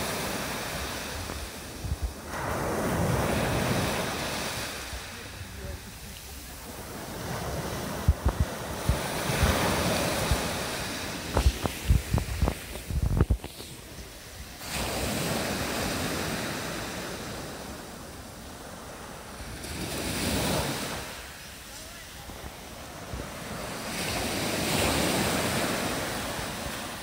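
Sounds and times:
wind buffeting microphone: 0:00.0 - 0:17.6
sea waves breaking: 0:00.0 - 0:27.0.

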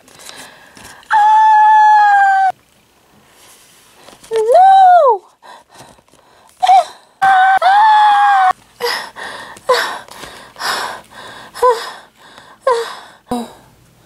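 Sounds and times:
person crying out: 0:06.6 - 0:08.5.

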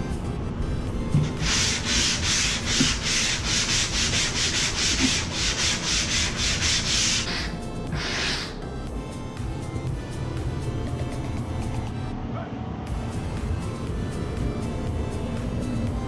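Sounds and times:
sanding sponge rubbing drywall: 0:01.2 - 0:08.6.

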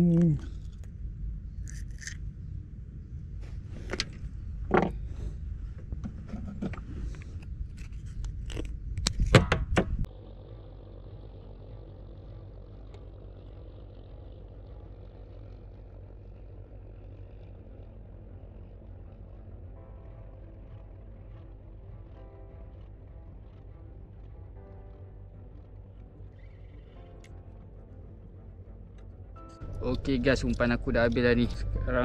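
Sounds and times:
wind rumble on microphone: 0:01.2 - 0:10.1.

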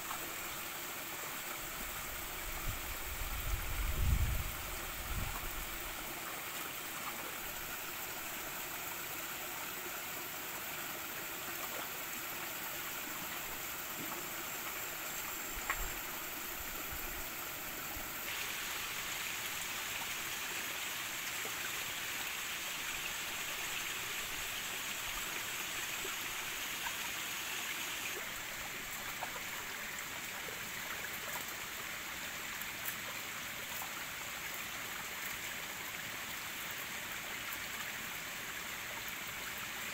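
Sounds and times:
stream running over rocks: 0:00.0 - 0:39.9.

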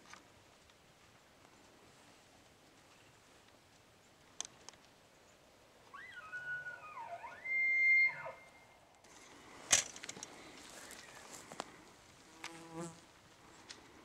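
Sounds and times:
elk bugling: 0:05.9 - 0:08.7.

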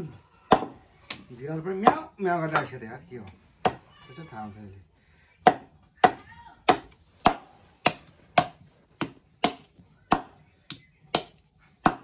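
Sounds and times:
knife chopping meat on wood: 0:11.1 - 0:12.0.

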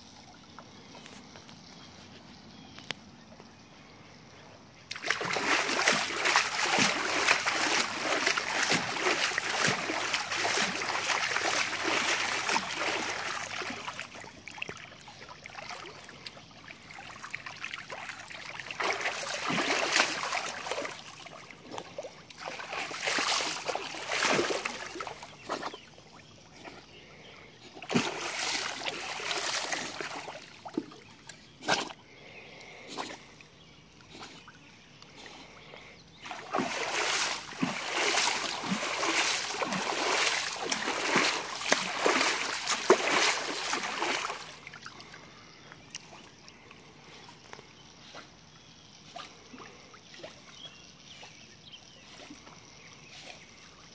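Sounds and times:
water splashing: 0:04.9 - 0:26.8, 0:27.7 - 0:32.0, 0:36.2 - 0:45.2.

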